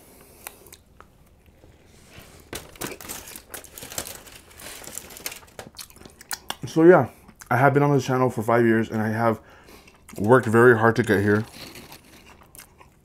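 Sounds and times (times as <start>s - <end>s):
aluminium foil crinkling: 2.1s - 6.2s, 10.1s - 12.6s.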